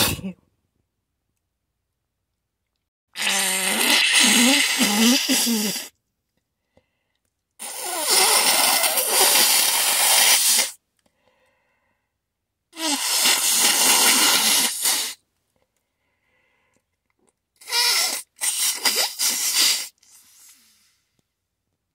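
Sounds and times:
person blowing nose: 0:00.0 - 0:00.3, 0:03.2 - 0:06.0, 0:07.6 - 0:10.8, 0:12.8 - 0:15.2, 0:17.6 - 0:21.0.

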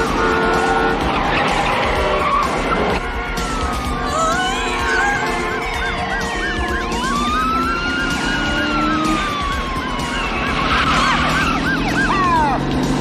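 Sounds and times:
engines droning: 0:00.0 - 0:13.0
police siren wailing: 0:00.0 - 0:13.0
police siren yelping: 0:01.1 - 0:12.7
steep falling siren sweeps: 0:02.2 - 0:12.6.

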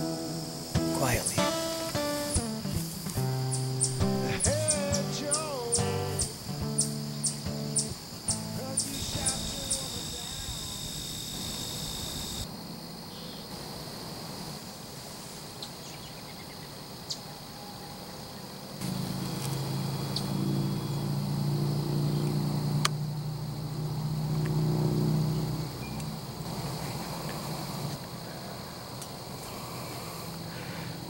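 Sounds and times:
faint insect chirring: 0:00.0 - 0:31.0
low engine drone: 0:02.5 - 0:12.5, 0:18.8 - 0:27.6.

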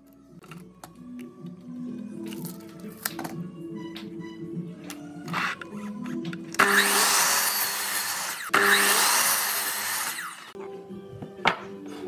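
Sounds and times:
background music: 0:00.0 - 0:12.0
miter saw cutting wood: 0:06.6 - 0:10.6.

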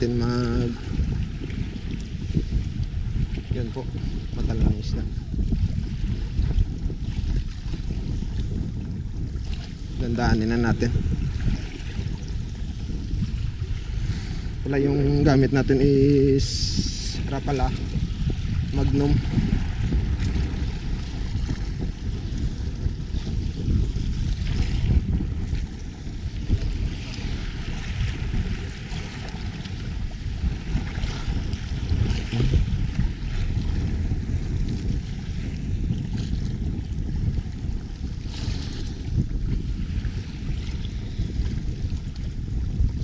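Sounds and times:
waves splashing against boat: 0:00.0 - 0:05.6, 0:09.4 - 0:36.6
wind buffeting microphone: 0:00.0 - 0:43.0.

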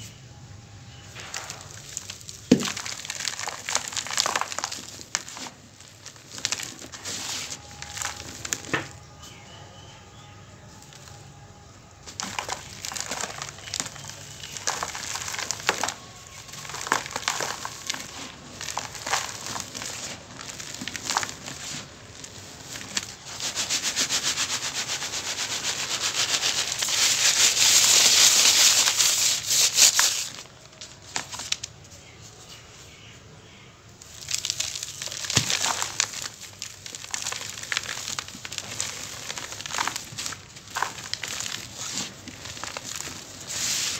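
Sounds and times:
cement block crumbling in hands: 0:01.2 - 0:09.0, 0:12.1 - 0:23.2, 0:34.1 - 0:43.9
powder pattering onto plastic colander: 0:01.2 - 0:09.0, 0:12.1 - 0:23.2, 0:34.0 - 0:43.9
powder rattling through colander: 0:01.2 - 0:09.0, 0:12.1 - 0:30.5, 0:34.1 - 0:43.9.

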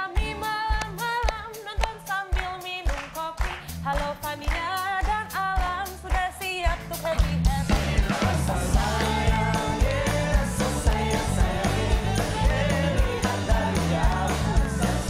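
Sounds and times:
live band playing pop: 0:00.0 - 0:15.0
voices singing along: 0:07.6 - 0:15.0.

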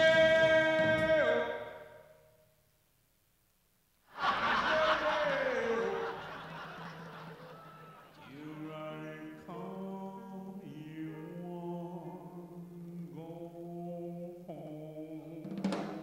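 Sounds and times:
man singing long held notes: 0:00.0 - 0:01.8, 0:08.2 - 0:16.0.

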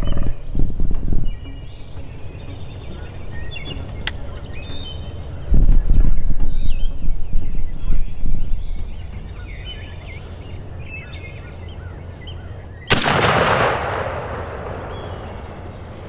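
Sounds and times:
faint songbird chirps: 0:00.0 - 0:13.0, 0:14.4 - 0:16.0
shotgun shot with echo: 0:12.9 - 0:15.5.

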